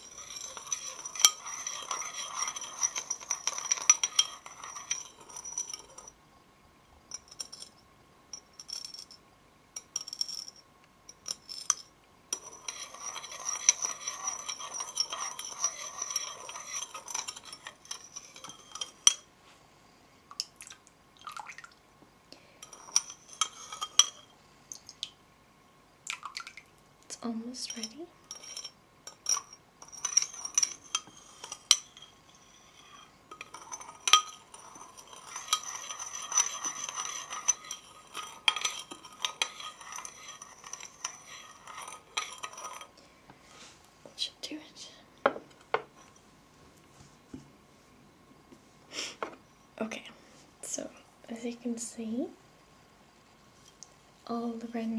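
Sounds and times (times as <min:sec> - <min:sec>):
metal spoon stirring in bowl: 0:00.0 - 0:06.2, 0:07.1 - 0:09.2, 0:09.8 - 0:19.3, 0:22.5 - 0:24.3, 0:27.2 - 0:43.0, 0:45.3 - 0:46.2
spoon clinking on bowl: 0:00.0 - 0:06.2, 0:07.1 - 0:09.2, 0:09.8 - 0:19.3, 0:22.6 - 0:24.3, 0:27.6 - 0:42.9.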